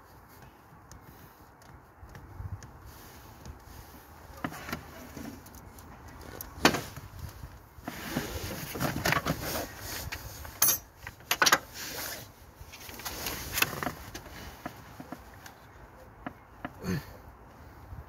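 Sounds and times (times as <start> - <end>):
tools clinking on engine parts: 10.5 - 11.7.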